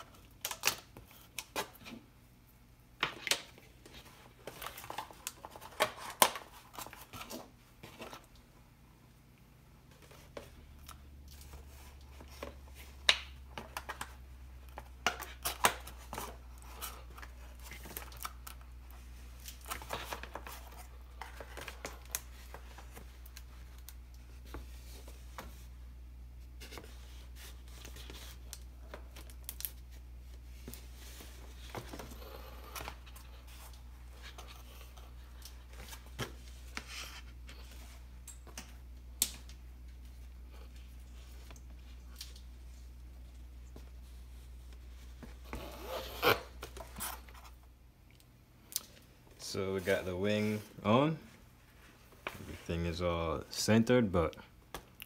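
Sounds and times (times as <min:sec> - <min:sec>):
plastic and foam clicks and rustles: 0:03.0 - 0:08.5
steady low hum: 0:06.5 - 0:55.0.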